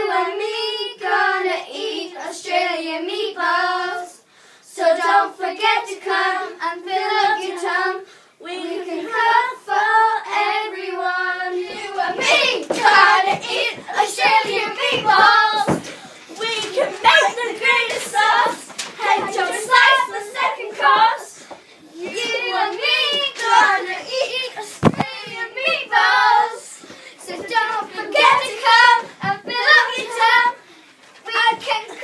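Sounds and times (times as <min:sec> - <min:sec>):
girls singing a cappella: 0:00.0 - 0:32.0
scuffling and thuds of dancing: 0:11.6 - 0:32.0.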